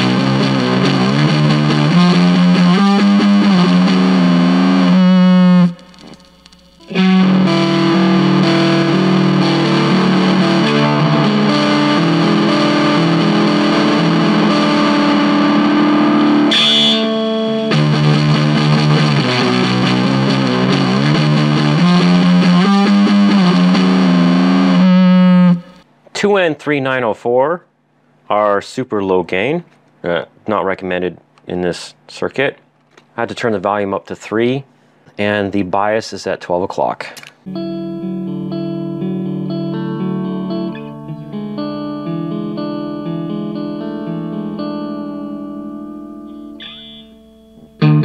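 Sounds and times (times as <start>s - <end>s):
fuzz electric guitar riff: 0.0s - 25.8s, 37.5s - 48.0s.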